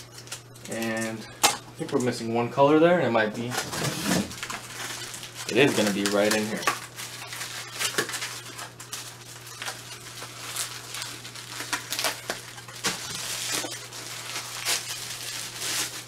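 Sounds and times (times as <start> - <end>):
cardboard and plastic crinkling: 3.4 - 16.0
sharp crackles: 4.4 - 16.0.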